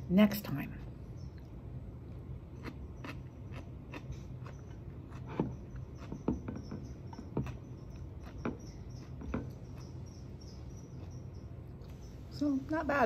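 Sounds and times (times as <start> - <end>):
steady low hum: 0.0 - 13.0
crunchy food being chewed: 1.3 - 12.3.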